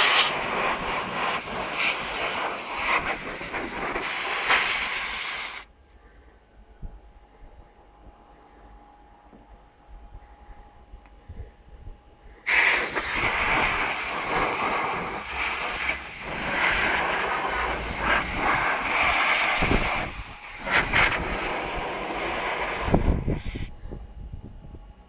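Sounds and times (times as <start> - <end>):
compressed air hissing: 0.0 - 5.7, 12.3 - 24.2.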